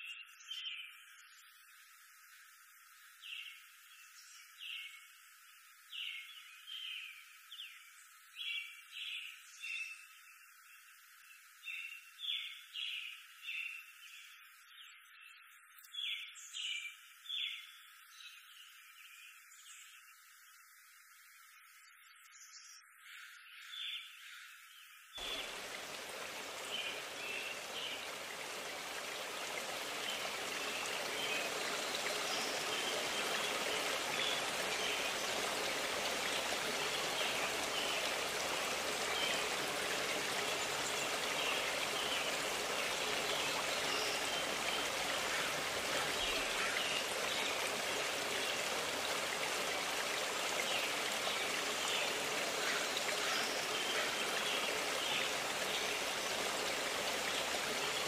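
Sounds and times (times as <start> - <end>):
stream rushing: 25.2 - 58.0.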